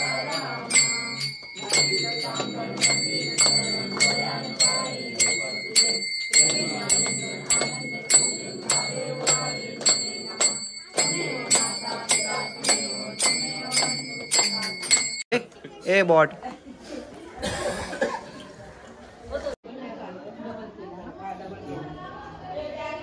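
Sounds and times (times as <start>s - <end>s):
voices singing: 0.0s - 15.2s
hand bell ringing: 0.0s - 15.3s.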